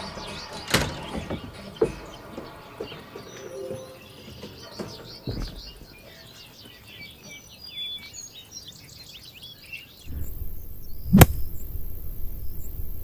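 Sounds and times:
small birds chirping: 0:00.0 - 0:13.0
pole thudding into dirt: 0:10.1 - 0:11.8
low rumbling background: 0:10.1 - 0:13.0.

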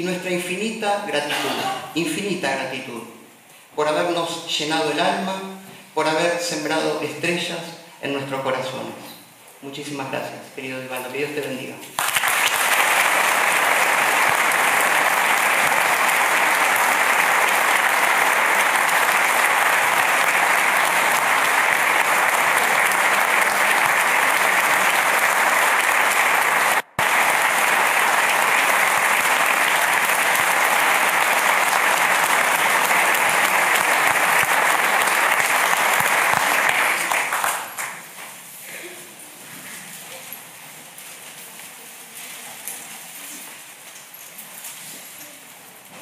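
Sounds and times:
audience applauding: 0:12.0 - 0:38.1.

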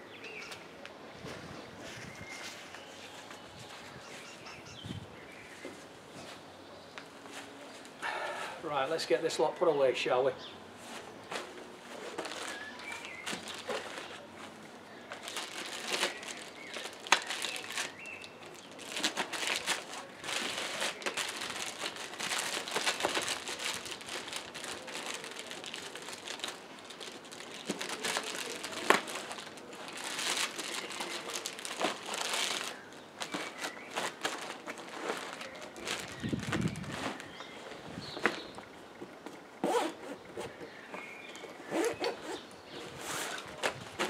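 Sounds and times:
plastic bags crinkling: 0:11.3 - 0:38.7.

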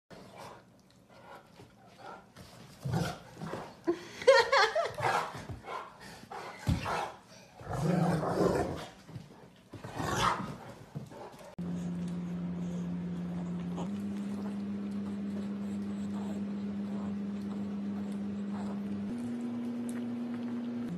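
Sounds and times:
dogs growling and barking: 0:02.0 - 0:03.8, 0:04.8 - 0:20.9
steady low drone: 0:11.6 - 0:20.9.

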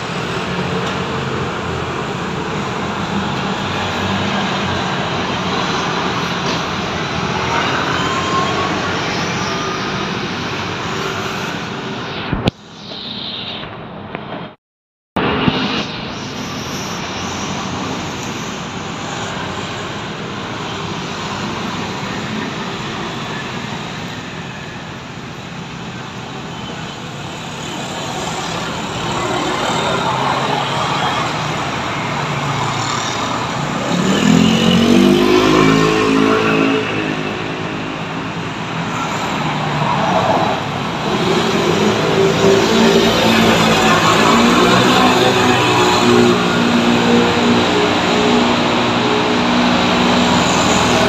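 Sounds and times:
scooters and cars passing: 0:00.0 - 0:12.2, 0:15.3 - 0:51.0
engine revving: 0:32.6 - 0:38.1.

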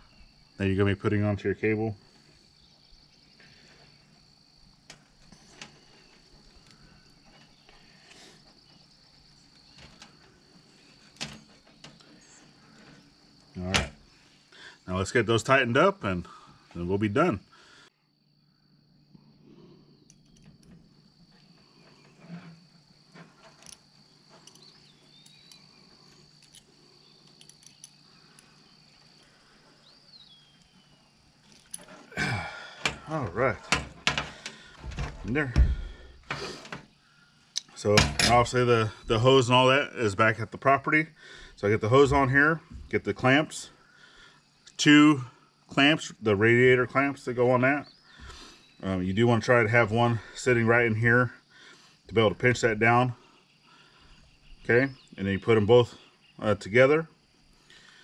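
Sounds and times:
high insect trill: 0:00.0 - 0:58.0
small metal clicks and clinks: 0:23.5 - 0:25.7, 0:26.3 - 0:28.6, 0:31.4 - 0:32.0.

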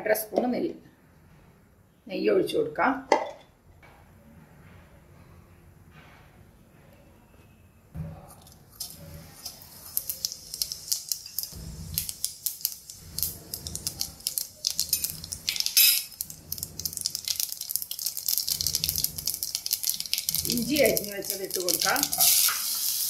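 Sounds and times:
seeds crackling in hot oil: 0:08.6 - 0:23.0.

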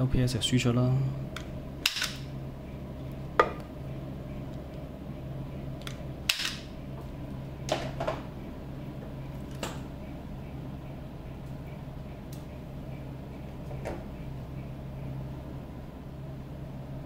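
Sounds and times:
wire stripper snapping: 0:01.4 - 0:02.3, 0:05.8 - 0:06.7.

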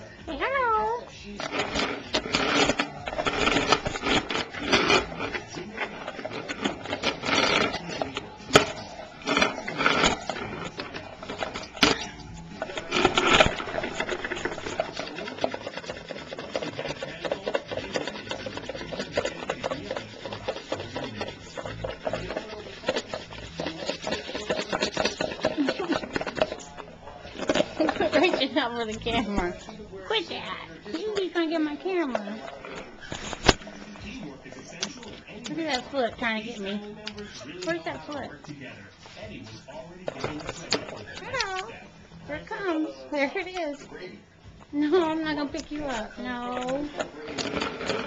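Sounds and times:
bird scratching and rubbing: 0:01.2 - 0:43.9, 0:44.9 - 0:48.0
fine rasping: 0:01.4 - 0:29.2.

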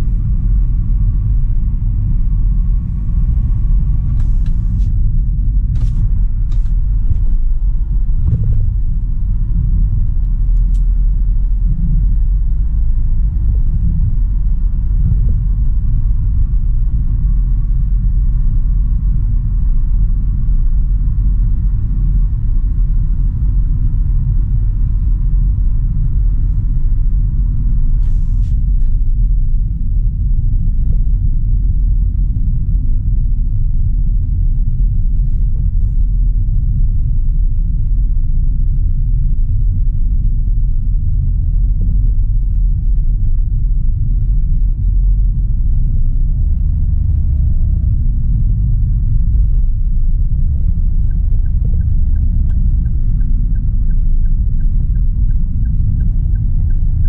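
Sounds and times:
road and engine rumble in car cabin: 0:00.0 - 0:57.0
turn signal ticking: 0:28.6 - 0:57.0.

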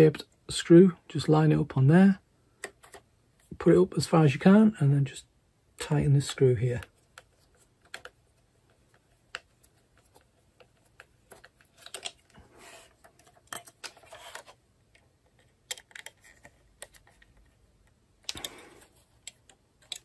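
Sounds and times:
plastic parts clicking and tapping: 0:06.7 - 0:12.4, 0:13.0 - 0:20.0.

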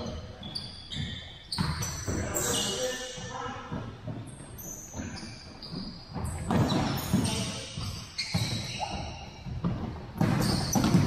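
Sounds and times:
shoe squeaks: 0:00.0 - 0:11.0
ball thudding on gym floor: 0:06.1 - 0:11.0.

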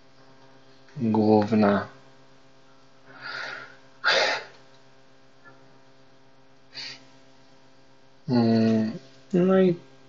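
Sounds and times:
electrical mains hum: 0:00.0 - 0:10.0
short breath: 0:03.1 - 0:04.5, 0:06.7 - 0:07.1.

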